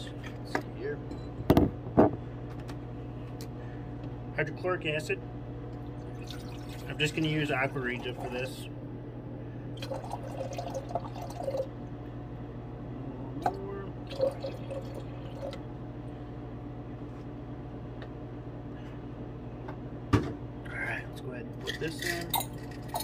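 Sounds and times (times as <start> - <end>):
liquid pouring into glass beaker: 6.0 - 7.1, 9.8 - 11.7, 14.0 - 15.6.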